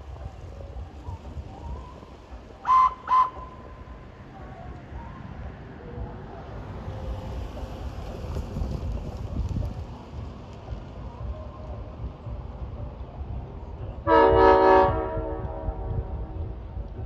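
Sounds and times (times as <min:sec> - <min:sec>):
locomotive whistle toots: 0:02.6 - 0:03.7, 0:14.1 - 0:15.9.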